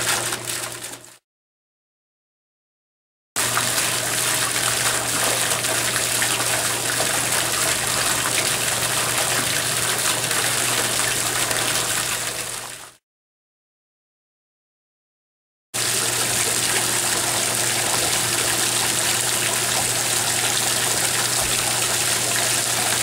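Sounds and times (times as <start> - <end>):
fountain water jet splashing: 0.0 - 1.0, 3.4 - 13.0, 15.8 - 23.0.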